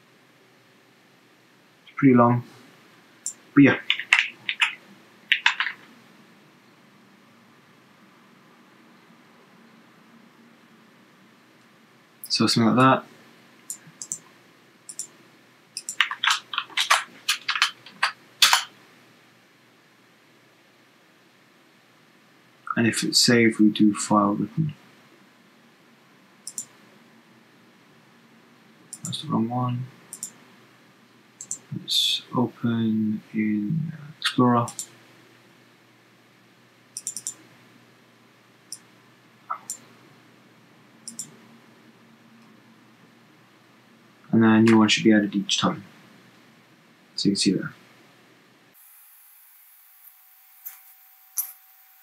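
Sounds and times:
keyboard typing: 0:03.3 - 0:05.9, 0:13.7 - 0:14.2, 0:14.9 - 0:15.1, 0:15.8 - 0:18.7, 0:26.5 - 0:26.7, 0:28.9 - 0:29.2, 0:30.1 - 0:30.4, 0:31.4 - 0:31.7, 0:34.7 - 0:34.9, 0:37.0 - 0:37.4, 0:39.5 - 0:39.8, 0:41.1 - 0:41.4
mouse clicks: 0:13.7 - 0:14.3, 0:15.8 - 0:17.7, 0:26.5 - 0:26.8, 0:28.9 - 0:29.2, 0:30.1 - 0:30.4, 0:31.4 - 0:31.7, 0:34.7 - 0:34.9, 0:37.0 - 0:37.4, 0:39.5 - 0:39.8, 0:41.1 - 0:41.4.

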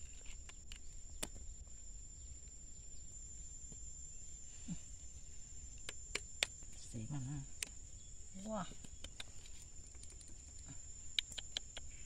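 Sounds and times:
high-pitched insect drone: 0:00.0 - 0:12.0
hands clicking on wooden stakes: 0:08.8 - 0:10.6, 0:11.2 - 0:11.9.

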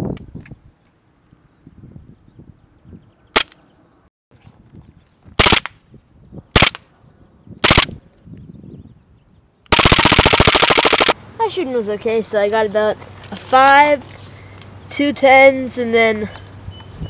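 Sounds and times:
airsoft pistol firing: 0:03.4 - 0:03.6, 0:05.4 - 0:05.8, 0:06.6 - 0:06.8, 0:07.6 - 0:07.9, 0:09.7 - 0:11.2.

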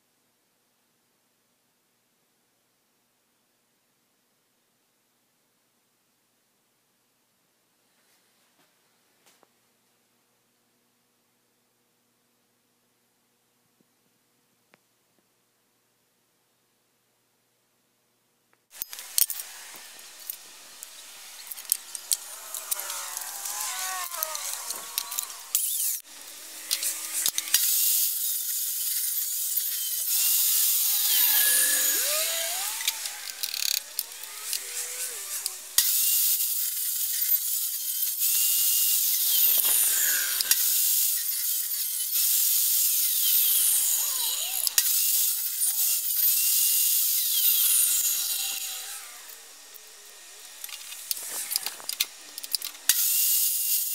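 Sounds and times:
power saw cutting wood: 0:18.7 - 0:53.9.

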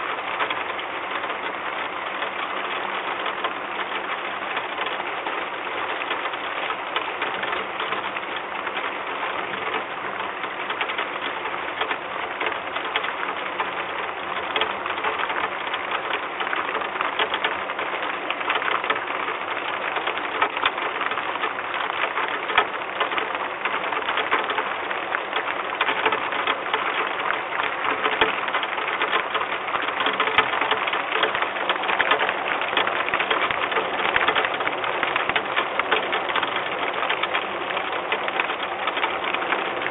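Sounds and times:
rain pattering on wood: 0:00.0 - 0:39.9.

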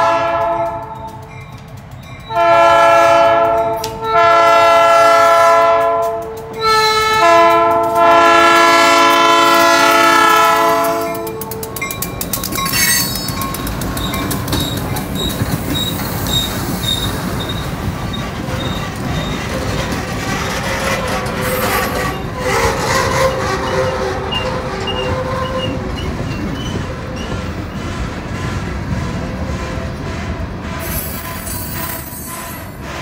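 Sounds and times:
train wheels rumbling on rails: 0:00.0 - 0:33.0
high wheel squeals: 0:11.8 - 0:19.8, 0:21.0 - 0:27.7, 0:30.8 - 0:32.8.

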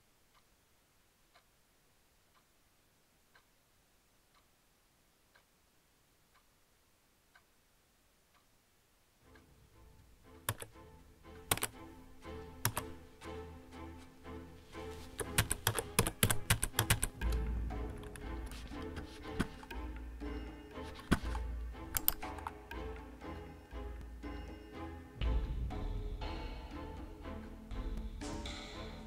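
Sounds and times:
clock ticking: 0:00.0 - 0:01.6, 0:02.2 - 0:02.6, 0:03.2 - 0:03.6, 0:04.2 - 0:05.6, 0:06.2 - 0:06.6, 0:07.2 - 0:14.5, 0:15.1 - 0:29.0
music: 0:09.2 - 0:29.0
computer keyboard key presses: 0:15.2 - 0:17.2.

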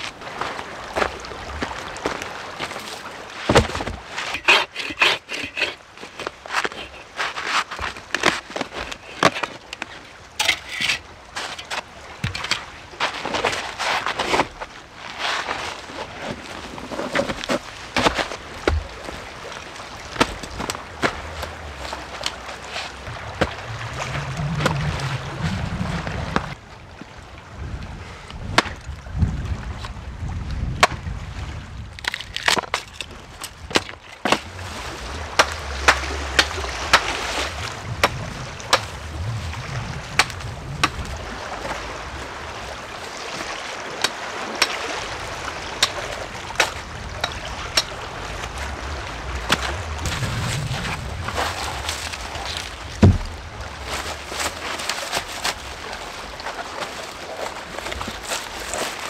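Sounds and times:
boughs and twigs rustling: 0:00.0 - 0:26.6, 0:32.0 - 0:59.0
twigs cracking: 0:32.0 - 0:39.1.

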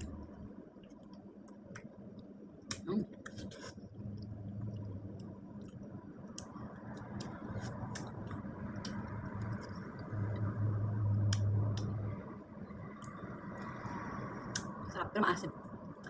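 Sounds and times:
low steady hum: 0:00.0 - 0:16.0
person chewing wetly: 0:00.8 - 0:10.6.

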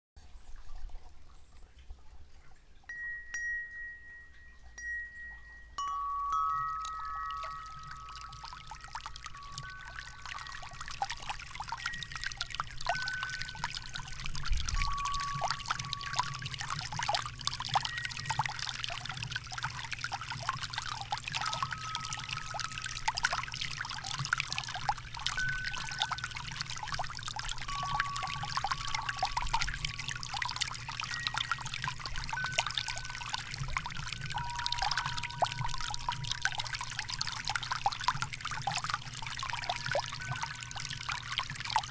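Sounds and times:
water splashing and trickling: 0:00.2 - 0:41.9
wind chime notes: 0:02.9 - 0:18.4, 0:21.3 - 0:23.5, 0:25.3 - 0:26.8, 0:27.6 - 0:36.2.

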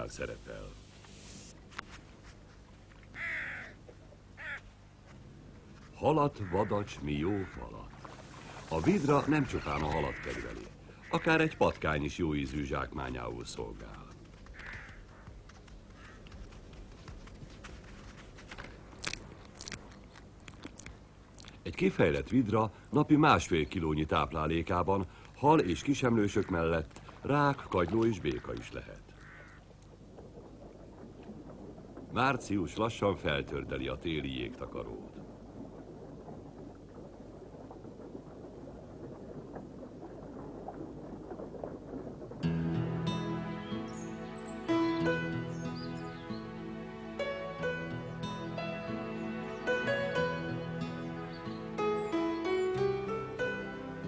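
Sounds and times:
ice crackling and ticking: 0:13.0 - 0:21.7
otter chewing crunchily: 0:13.6 - 0:21.7
water gurgling under ice: 0:29.6 - 0:42.6.

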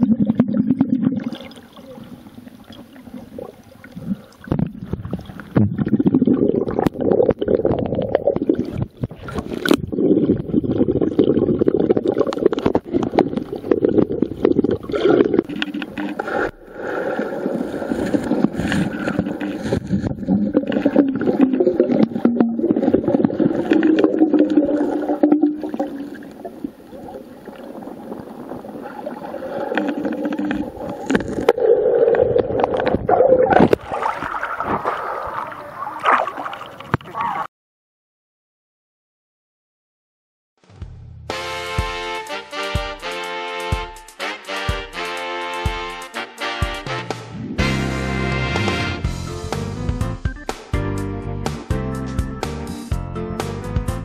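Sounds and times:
underwater sloshing and gurgling: 0:00.0 - 0:37.5.

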